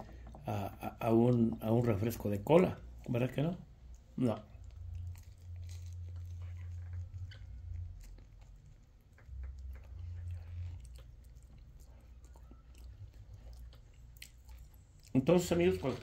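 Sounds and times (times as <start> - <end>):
person chewing food: 0.0 - 16.0
low rumble: 2.8 - 14.0.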